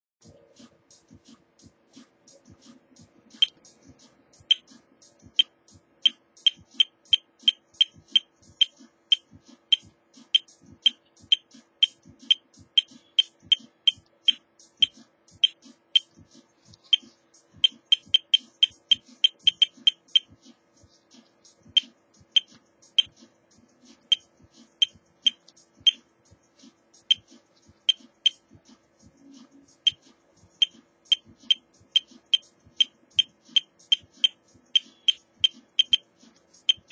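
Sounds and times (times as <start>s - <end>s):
short high-pitched beeps: 17.6s - 20.2s.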